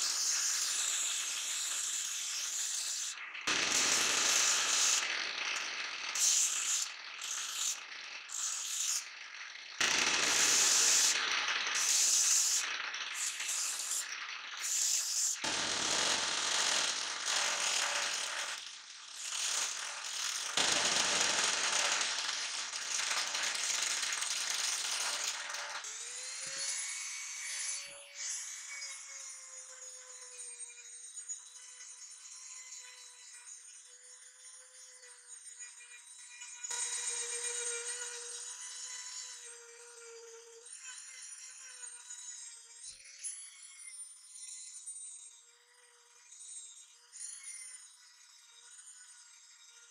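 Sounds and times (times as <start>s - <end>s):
sanding machine rattling: 0.0s - 26.8s
machine whine: 3.2s - 33.4s, 35.4s - 49.9s.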